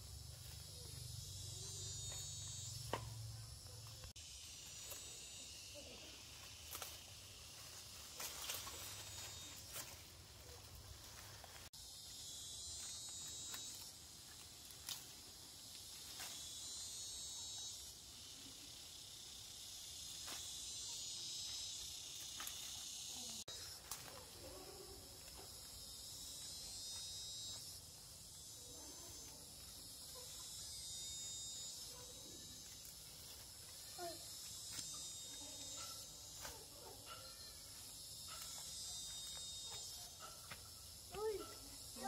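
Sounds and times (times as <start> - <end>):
insects chirring: 0.0 - 42.0
rustles: 3.9 - 11.7.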